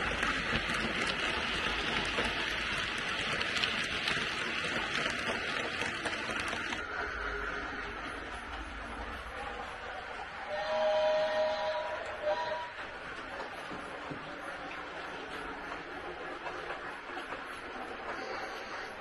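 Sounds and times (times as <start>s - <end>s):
model train coaches rolling: 0.0s - 19.0s.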